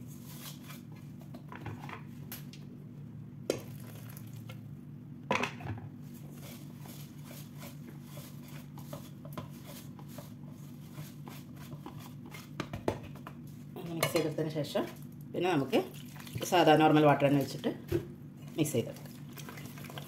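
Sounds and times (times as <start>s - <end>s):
whisk scraping a metal pot: 6.3s - 12.6s.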